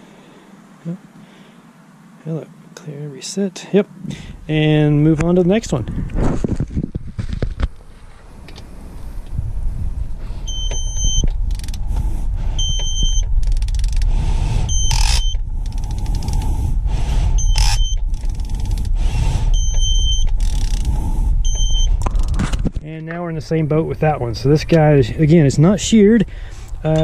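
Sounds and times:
steady low rumble: 0.0 - 27.0
rustling noise: 5.5 - 23.3
torque wrench beeps: 10.5 - 11.6, 12.6 - 13.6, 14.6 - 15.4, 17.4 - 18.0, 19.4 - 20.8, 21.4 - 22.0.

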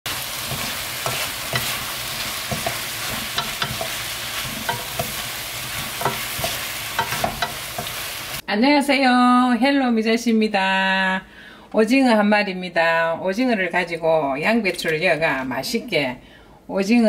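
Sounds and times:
food sizzling in a wok: 0.0 - 8.4
spatula scraping pan: 0.1 - 8.4.

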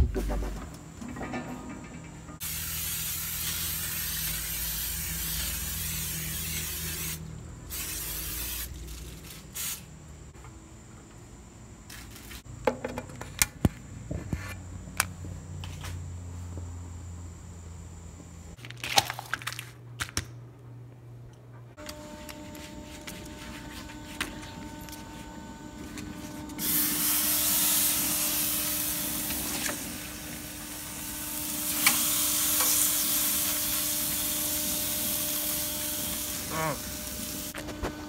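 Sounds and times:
aerosol spray hissing: 2.4 - 9.9, 26.6 - 37.6
plastic wrapping crinkling: 18.6 - 20.1.

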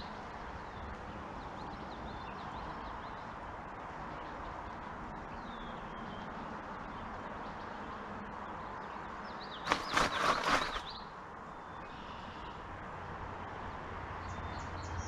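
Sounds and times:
small birds chirping: 8.5 - 12.6
creek water rushing: 9.7 - 10.9.

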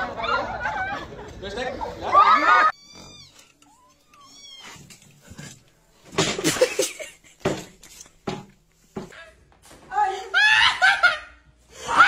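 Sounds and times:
cat meowing: 2.7 - 4.9.

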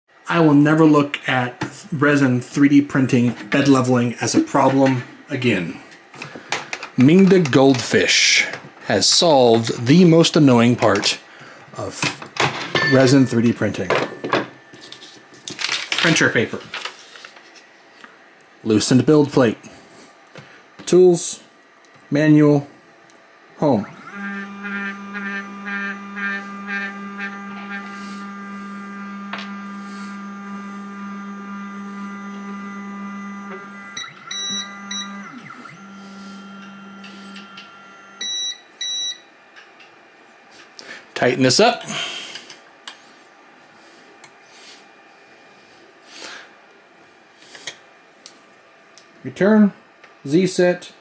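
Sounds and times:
stepper motor hum: 23.7 - 38.4
chirping pulse: 23.9 - 38.4.

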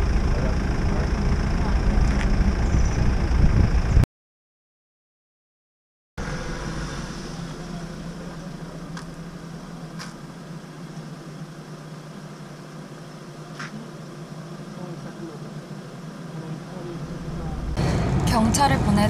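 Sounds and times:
vehicle engine idling: 0.0 - 4.0, 6.2 - 19.0.

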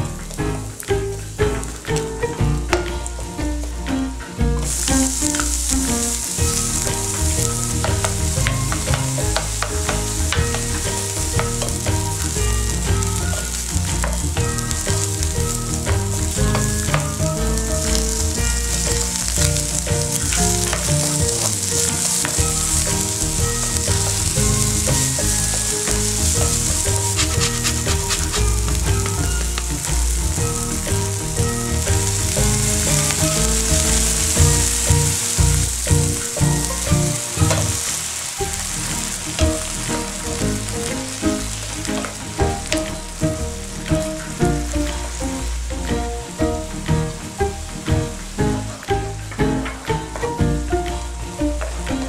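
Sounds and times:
vegetables sizzling in oil: 0.0 - 52.0
wooden spatula stirring: 4.6 - 45.2.

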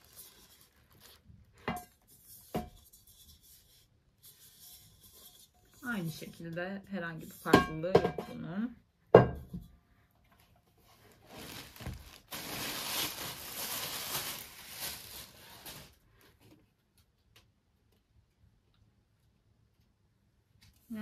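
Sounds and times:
plastic bag rustling: 0.0 - 2.3, 10.8 - 16.4.

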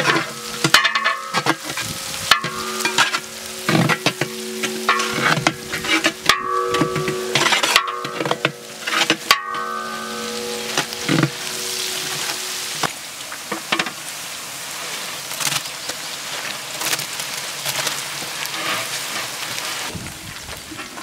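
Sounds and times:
metal paddle scraping pot: 0.0 - 12.9
held musical note: 0.0 - 13.2
food sizzling in metal pot: 0.0 - 21.0.

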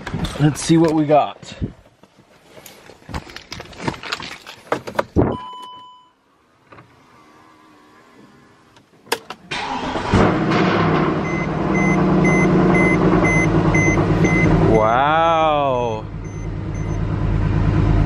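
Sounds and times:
car engine running loud: 9.7 - 18.0
warning chime beeping: 11.2 - 14.6.

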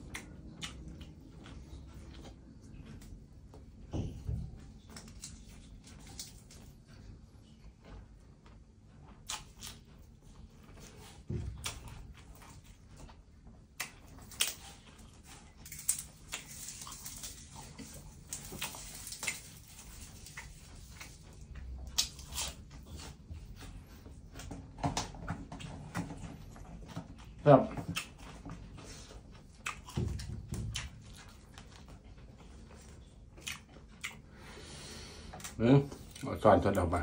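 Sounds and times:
person chewing food: 0.0 - 36.9
wet mouth smacks and clicks: 13.8 - 14.7.

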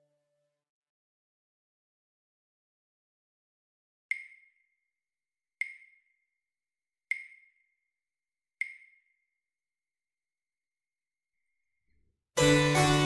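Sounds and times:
metronome clicks: 4.1 - 4.6, 5.6 - 6.0, 7.1 - 7.6, 8.6 - 9.1.

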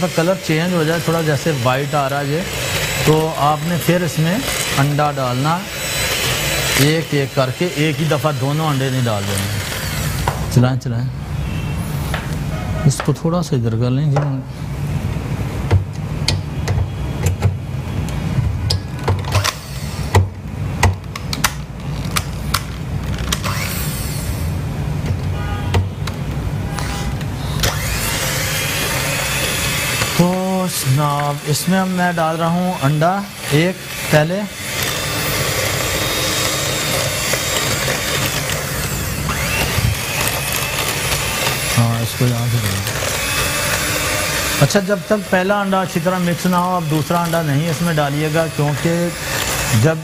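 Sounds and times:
electric hand mixer running: 0.0 - 10.6, 19.3 - 20.2, 23.4 - 24.6, 26.8 - 50.0.

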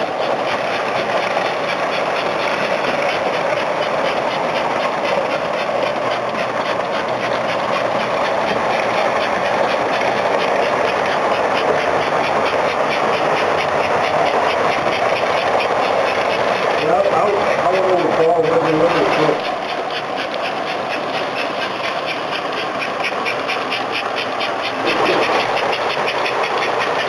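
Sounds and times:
model train motor and wheel rumble: 0.0 - 27.0.

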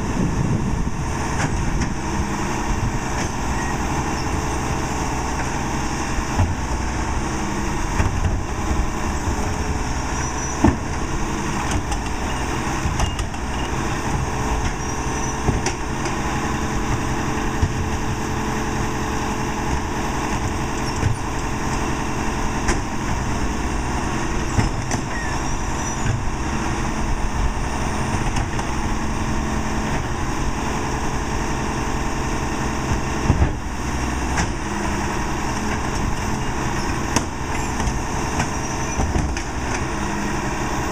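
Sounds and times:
garbage truck diesel engine: 0.0 - 40.9
trash carts knocking and banging: 7.8 - 31.2, 32.4 - 40.9.

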